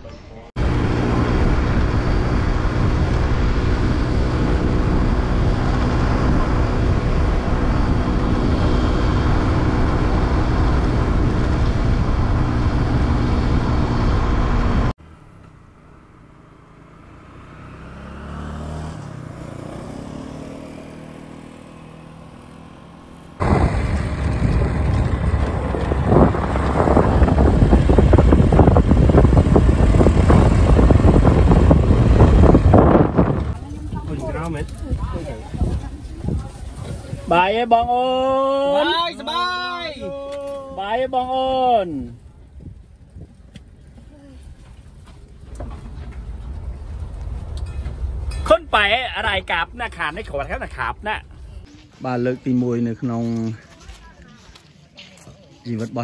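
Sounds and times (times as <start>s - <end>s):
rough road noise: 0.0s - 56.0s
engine note rising and falling: 0.6s - 33.7s
motorbike engine: 0.6s - 36.4s.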